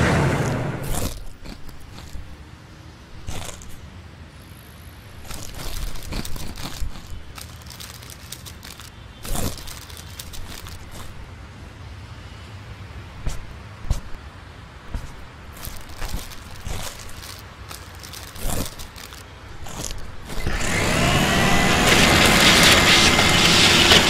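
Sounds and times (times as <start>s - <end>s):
passing vehicle: 0.0s - 1.0s
popcorn crunching and rustling: 0.2s - 2.4s, 3.2s - 3.9s, 5.1s - 11.3s, 13.2s - 14.3s, 14.9s - 24.0s.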